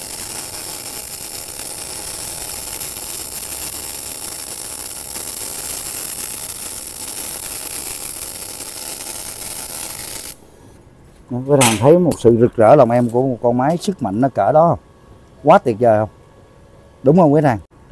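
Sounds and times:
welding arc buzzing: 0:00.0 - 0:10.7.

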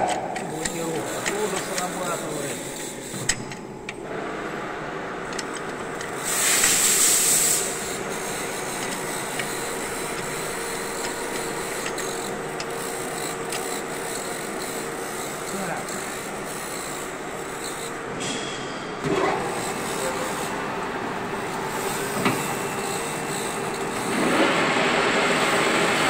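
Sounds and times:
lathe humming: 0:00.0 - 0:26.0
loud hiss: 0:06.2 - 0:07.8.

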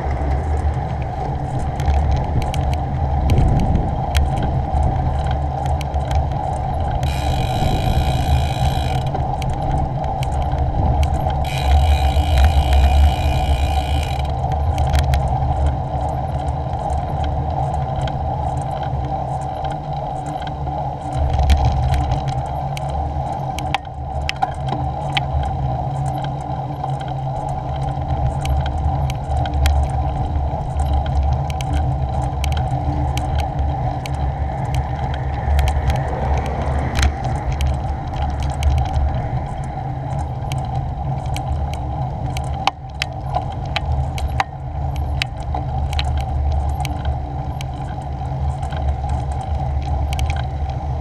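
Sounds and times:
tyre noise on tarmac: 0:00.0 - 0:15.8
bicycle clicks and rattles: 0:00.0 - 0:51.0
wind buffeting microphone: 0:00.0 - 0:51.0.

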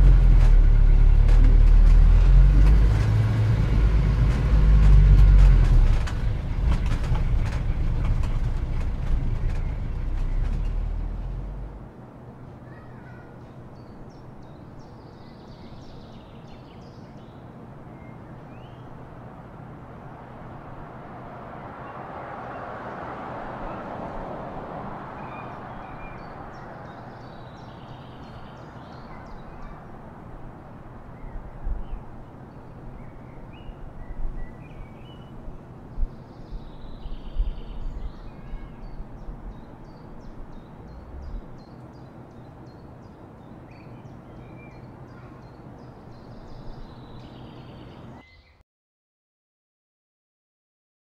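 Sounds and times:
car passing: 0:00.0 - 0:12.0, 0:18.8 - 0:36.0, 0:39.3 - 0:42.6
traffic noise with low hum: 0:00.0 - 0:48.6
birds calling: 0:36.1 - 0:48.6.

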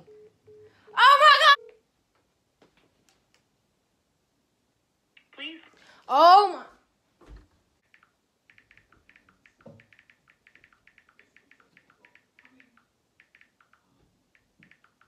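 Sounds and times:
typing on a smartphone: 0:07.8 - 0:15.0.

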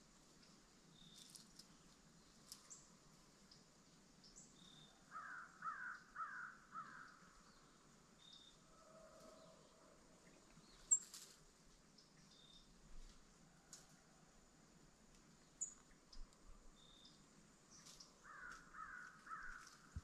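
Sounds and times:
crow cawing: 0:05.1 - 0:07.2, 0:18.2 - 0:19.9.

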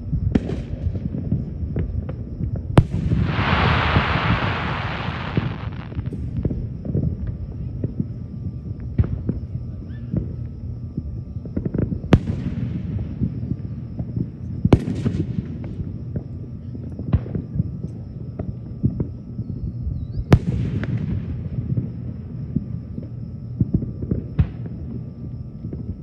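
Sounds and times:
fireworks bursting: 0:02.8 - 0:06.2
crackling hiss: 0:02.8 - 0:06.4.

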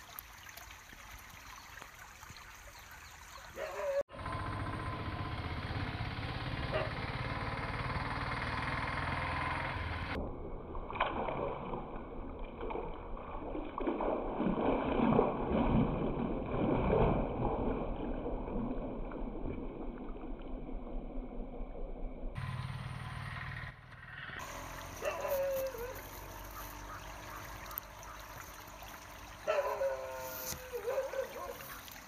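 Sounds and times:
fish thrashing and splashing: 0:10.7 - 0:18.3, 0:24.4 - 0:32.0.

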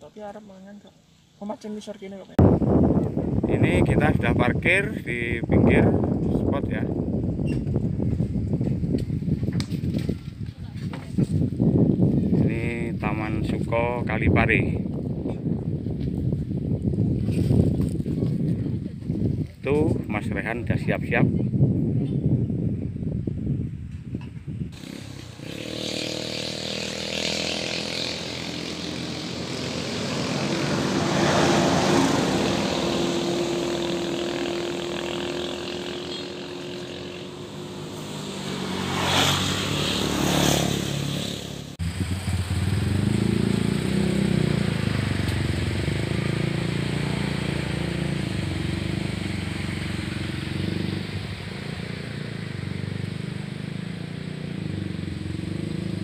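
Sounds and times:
low engine hum: 0:26.2 - 0:56.0
motor engine running: 0:32.3 - 0:38.4.

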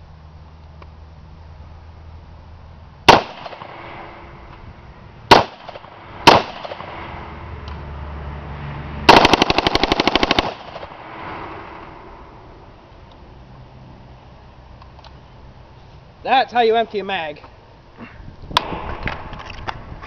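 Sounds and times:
rifle gunshots with echo: 0:03.1 - 0:03.9, 0:05.3 - 0:07.0, 0:09.1 - 0:11.1
rapid automatic gunfire burst: 0:09.1 - 0:10.9.

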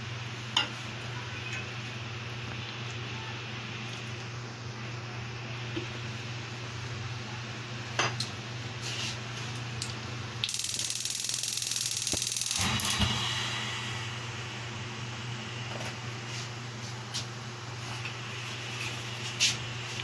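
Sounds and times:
steady low hum: 0:00.0 - 0:20.0
gas burner hissing and ticking: 0:10.4 - 0:20.0.

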